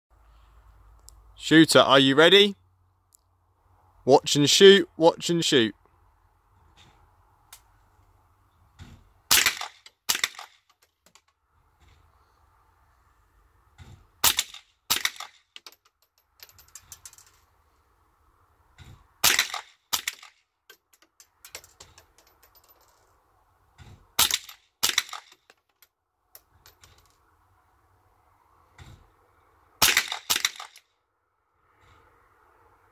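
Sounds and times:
rifle shots: 9.3 - 10.6, 14.2 - 15.4, 19.2 - 20.3, 24.2 - 25.4, 29.8 - 30.8.

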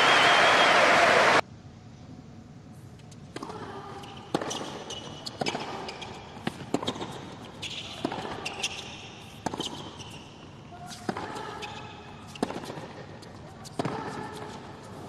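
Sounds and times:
racket hitting tennis ball: 3.3 - 15.0
ball bouncing on hard court: 3.4 - 15.0.

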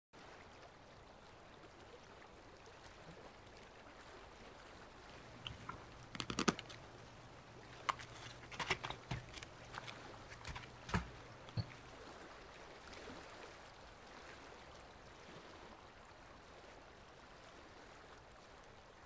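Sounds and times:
sketchbook clicks: 5.4 - 6.8
paper rustling: 5.4 - 6.9, 7.7 - 11.7.

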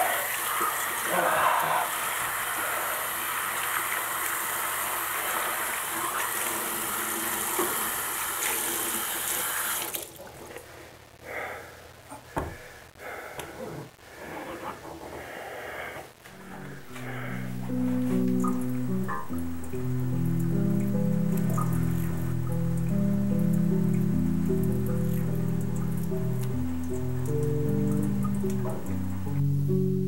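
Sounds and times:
water running from faucet: 0.0 - 10.2, 16.4 - 29.3
thump: 12.4 - 12.6.

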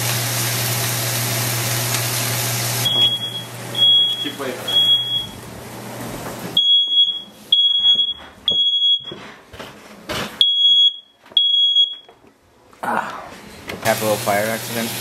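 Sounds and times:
smoke alarm beeping: 2.8 - 5.4, 6.6 - 9.2, 10.4 - 12.2
steady hiss: 13.8 - 15.0.

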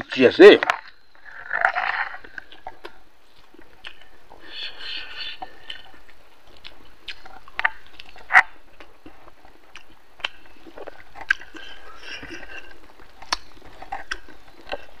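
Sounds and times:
man chewing with wet smacks: 0.7 - 15.0.

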